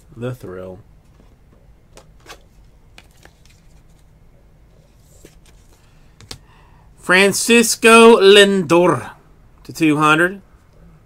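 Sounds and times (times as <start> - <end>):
low room hum: 0.0 - 11.0
card handling clicks and rustles: 1.1 - 4.1.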